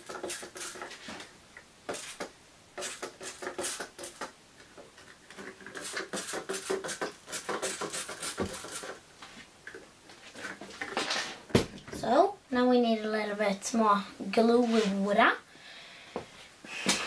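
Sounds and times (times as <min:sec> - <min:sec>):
handling noise rustling and clicking: 0:09.2 - 0:12.0.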